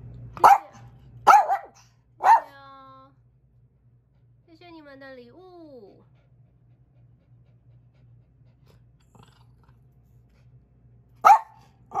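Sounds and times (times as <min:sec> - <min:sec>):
dog barking: 0:00.4 - 0:02.6, 0:11.2 - 0:12.0
dogs panting: 0:05.8 - 0:10.8.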